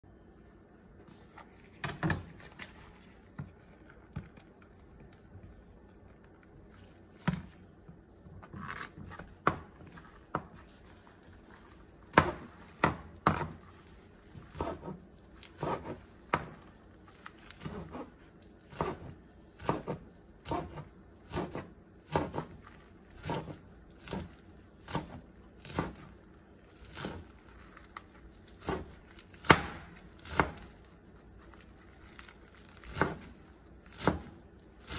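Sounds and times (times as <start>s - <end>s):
knife chopping on plastic board: 9.0s - 10.7s, 12.1s - 13.7s, 14.3s - 26.2s, 26.8s - 30.8s, 32.1s - 34.9s.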